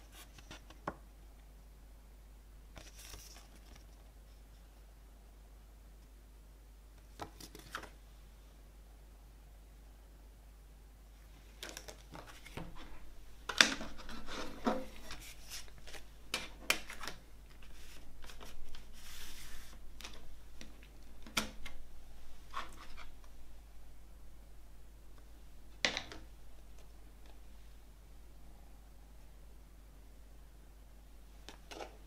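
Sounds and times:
plastic and paper rubbing: 13.8s - 20.2s.

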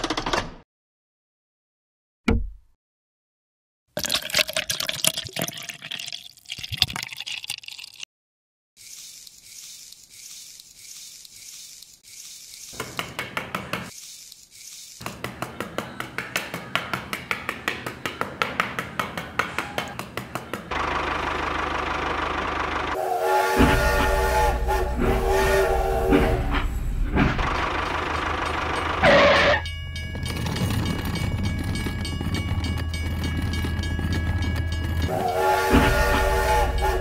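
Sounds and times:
tool scraping through sand: 8.8s - 13.0s, 13.8s - 15.2s
toy train whistle: 22.9s - 26.5s, 35.0s - 37.0s.

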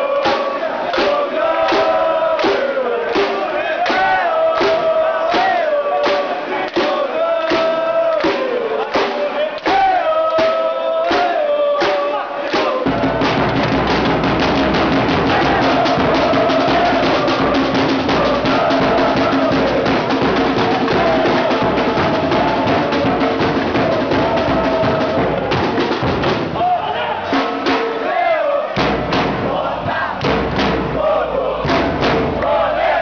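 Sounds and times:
fast drum beating: 0.0s - 33.0s
football supporters chanting: 0.0s - 33.0s
drum hits: 0.1s - 33.0s.

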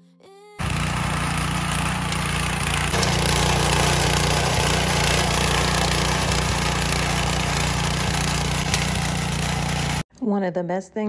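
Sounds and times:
tiller engine running under load: 0.6s - 10.0s.

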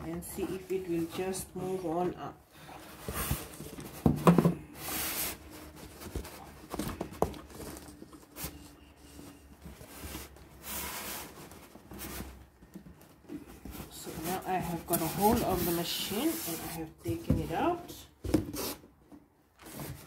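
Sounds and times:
plastic scraping against foam: 13.3s - 17.8s.

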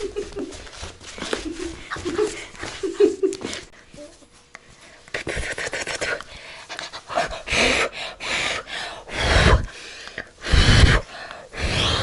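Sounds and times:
heavy breathing: 6.0s - 12.0s.

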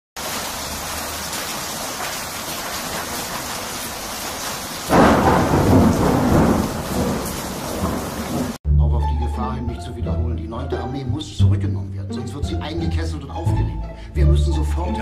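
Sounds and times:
steady rain: 0.2s - 8.6s
thunder clap rumbling: 4.8s - 8.6s.

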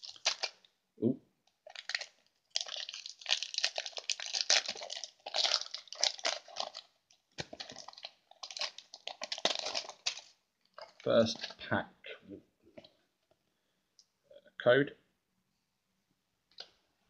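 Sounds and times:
foil wrapper crinkling: 0.0s - 0.7s, 1.6s - 11.6s.

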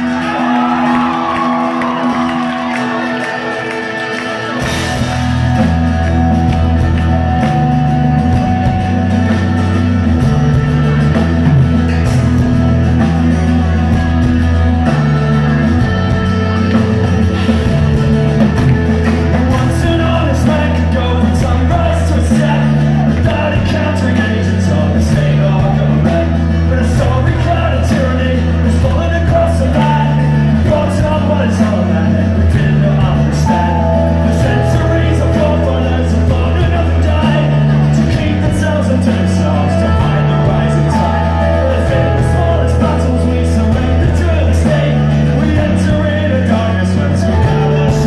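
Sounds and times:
drums: 0.0s - 48.0s
electric bass line: 0.0s - 48.0s
live rock band: 0.0s - 48.0s
person singing lead vocal: 19.0s - 48.0s.

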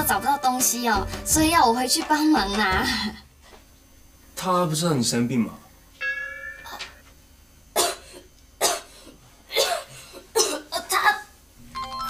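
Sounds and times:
person coughing: 7.8s - 10.8s.

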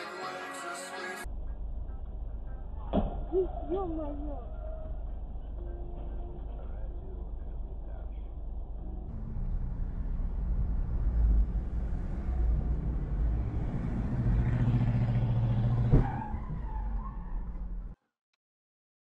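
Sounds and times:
road and engine noise: 1.2s - 18.0s
vehicle crash: 9.1s - 18.0s.

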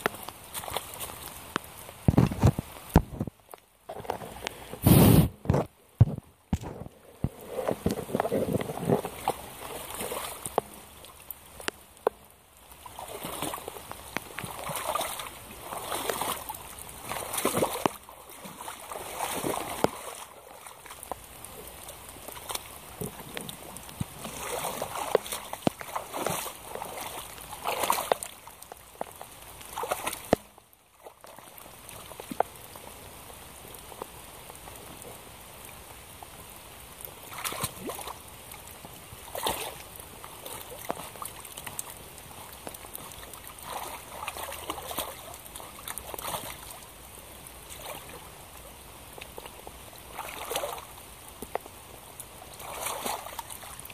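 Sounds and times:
boots splashing through puddle: 0.0s - 3.0s, 7.6s - 12.1s, 12.7s - 32.7s, 37.2s - 46.9s, 47.6s - 48.3s, 49.3s - 50.9s, 52.5s - 53.9s
rain falling: 0.0s - 53.9s.

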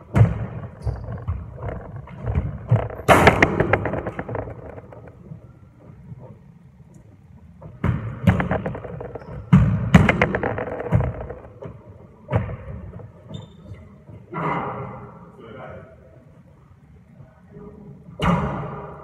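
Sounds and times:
thuds echoing off walls: 0.0s - 5.2s, 7.7s - 13.0s.

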